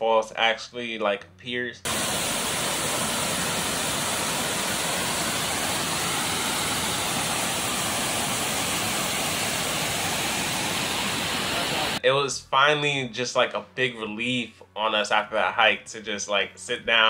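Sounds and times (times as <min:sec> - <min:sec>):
waterfall rushing over rocks: 0:01.9 - 0:12.0.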